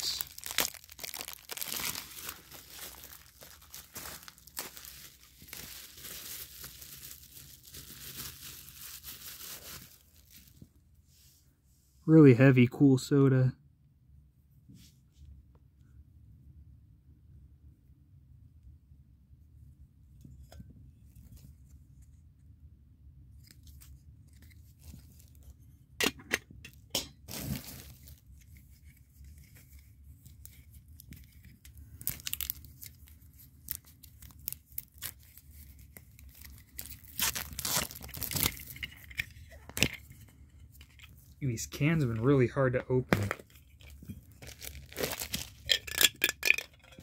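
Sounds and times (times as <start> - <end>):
packaging tearing: 0.0 - 10.5, 27.3 - 28.2, 31.9 - 40.1, 43.1 - 46.6.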